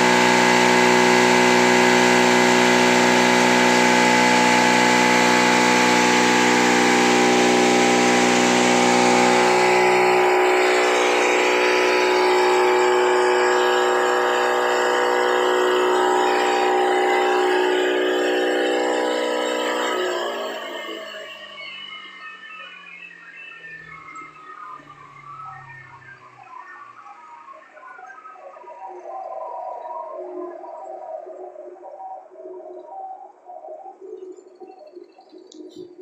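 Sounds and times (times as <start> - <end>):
grinding machine whining: 0.0 - 27.2.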